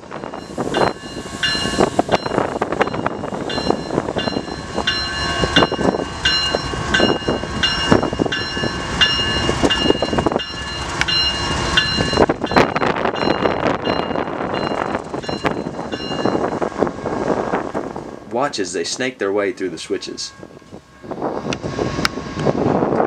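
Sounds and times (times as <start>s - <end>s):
locomotive engines rumbling: 0.0s - 23.0s
bell ringing: 0.4s - 16.6s.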